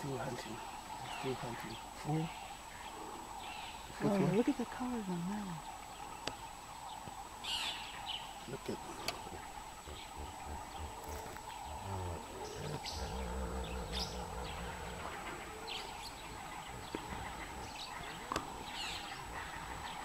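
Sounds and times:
birds chirping: 0:00.0 - 0:20.0
low rumble: 0:09.2 - 0:20.0.

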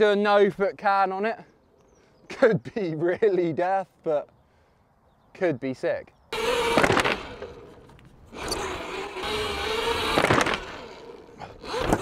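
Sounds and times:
electric motorbike motor whining: 0:06.3 - 0:12.0
tyre noise: 0:06.4 - 0:12.0.

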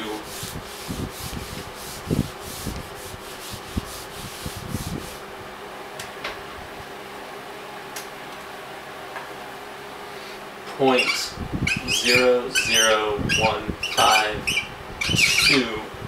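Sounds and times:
eraser scrubbing whiteboard: 0:00.0 - 0:05.2.

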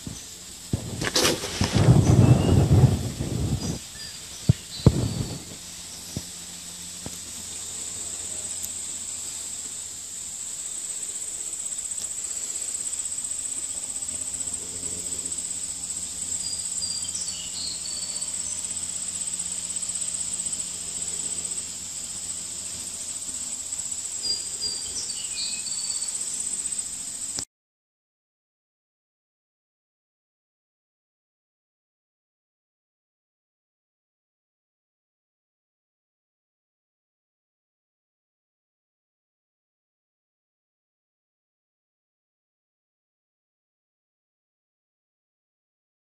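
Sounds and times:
high-pitched insect chorus: 0:00.0 - 0:27.5.

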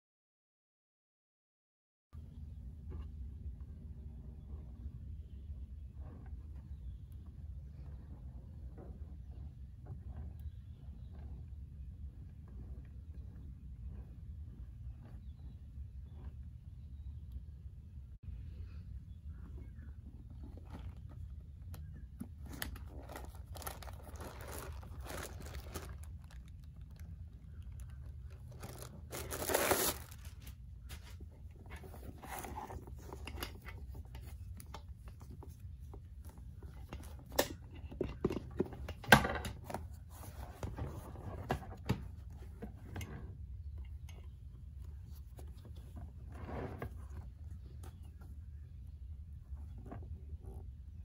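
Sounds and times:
scraping rustle: 0:19.4 - 0:37.5, 0:39.6 - 0:48.5
leather handbag rustling: 0:22.2 - 0:33.2.

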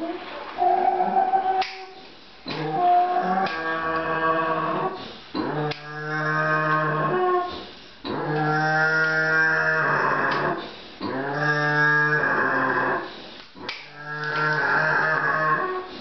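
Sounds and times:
pig screaming: 0:08.2 - 0:13.0, 0:13.7 - 0:16.0.

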